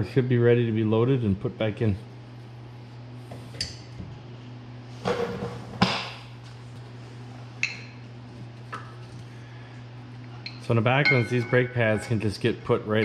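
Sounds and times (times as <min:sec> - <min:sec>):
ringing metallic tink: 0:10.5 - 0:12.2
metal brake parts clinking: 0:11.0 - 0:12.2.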